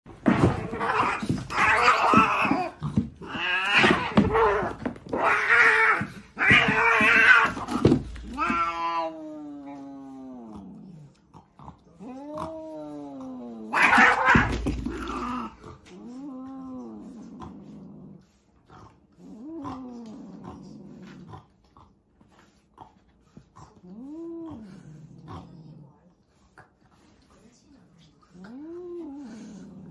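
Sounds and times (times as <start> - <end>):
cats hissing and screaming: 0.1 - 11.1, 11.8 - 21.3
cats yowling: 0.3 - 10.5, 12.0 - 16.8.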